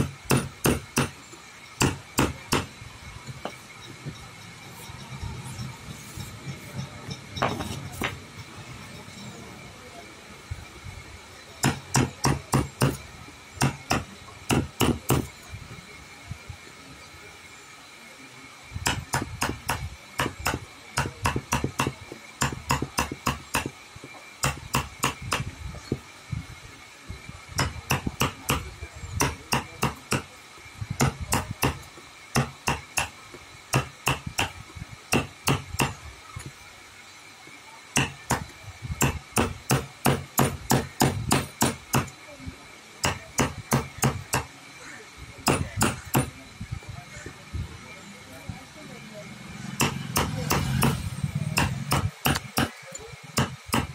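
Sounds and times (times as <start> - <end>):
hammer tapping: 18.9 - 23.7, 24.4 - 25.5, 27.6 - 30.3, 38.0 - 42.1, 45.4 - 46.4, 51.6 - 52.8, 53.4 - 53.9.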